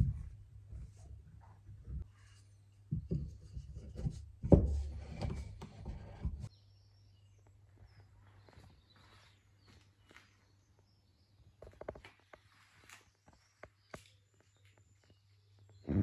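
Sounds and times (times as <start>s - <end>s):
wood-on-wood knocking and rubbing: 2.9s - 6.5s.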